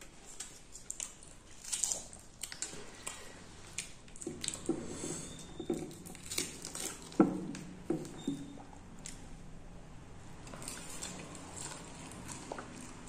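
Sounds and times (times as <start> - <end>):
chewing crisp fried bread: 0.0 - 9.5, 10.3 - 13.0
wet squishing of food: 0.0 - 13.0.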